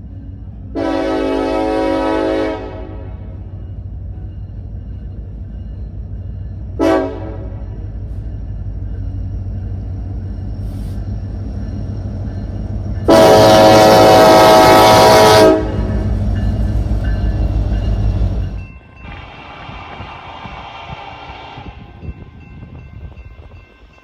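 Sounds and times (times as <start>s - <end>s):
diesel locomotives rumbling: 0.0s - 24.0s
locomotive air horn: 0.8s - 3.3s, 6.8s - 7.6s, 13.1s - 16.0s.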